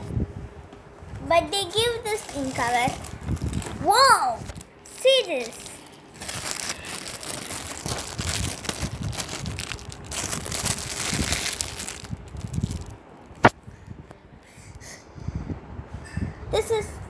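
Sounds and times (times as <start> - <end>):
plastic toy rustling and crinkling: 1.7 - 13.5.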